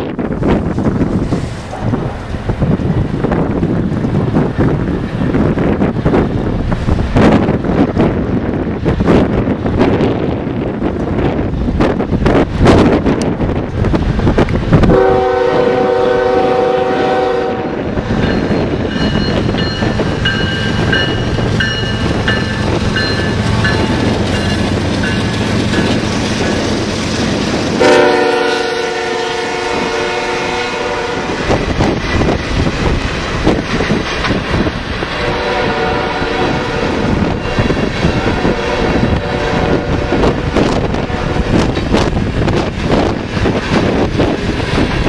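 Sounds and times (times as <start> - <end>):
locomotive horn blasts: 14.9 - 17.9, 27.8 - 31.4, 35.2 - 41.6
freight cars clicking over rails: 17.9 - 27.8, 31.2 - 35.2, 40.2 - 45.0.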